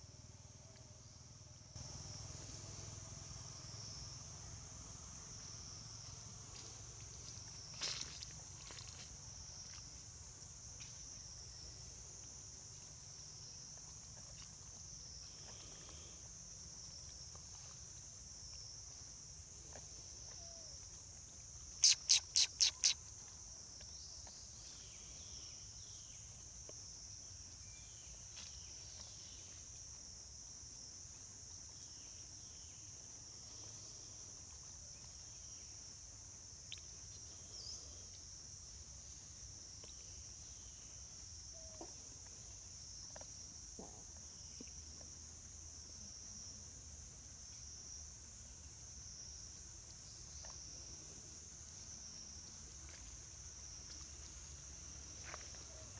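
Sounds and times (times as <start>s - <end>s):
insects droning: 0.0s - 55.9s
faint bird chirps: 21.8s - 23.0s
loud sharp calls: 21.8s - 23.0s.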